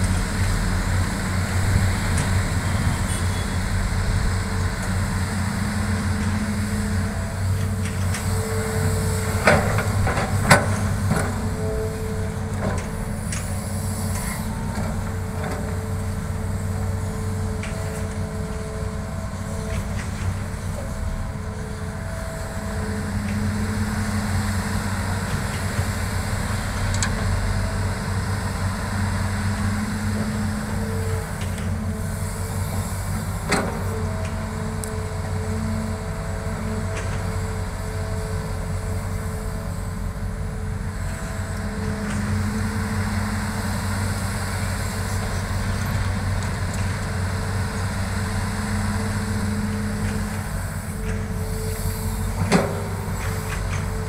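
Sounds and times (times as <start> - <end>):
diesel engine droning: 0.0 - 54.0
hydraulic whine: 0.0 - 54.0.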